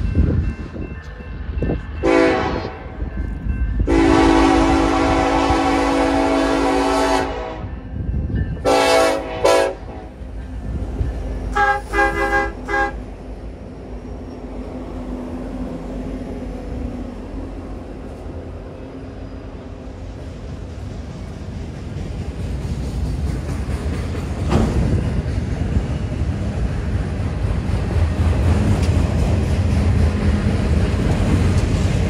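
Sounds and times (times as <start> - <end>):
train rolling past: 0.0 - 32.0
locomotive air horn blasts: 2.0 - 3.0, 3.8 - 7.8, 8.6 - 10.2, 11.5 - 13.0.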